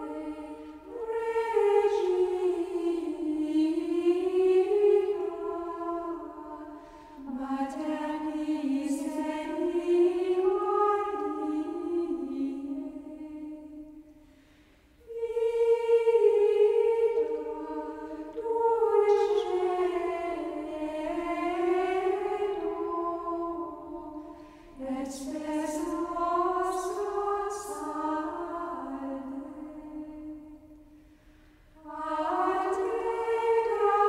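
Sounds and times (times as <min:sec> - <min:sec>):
choir singing: 0:00.0 - 0:14.2, 0:15.0 - 0:31.0, 0:31.7 - 0:34.0.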